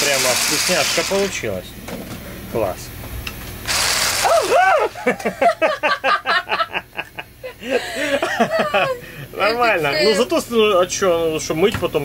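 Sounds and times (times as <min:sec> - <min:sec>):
person laughing: 0:04.4 - 0:09.2.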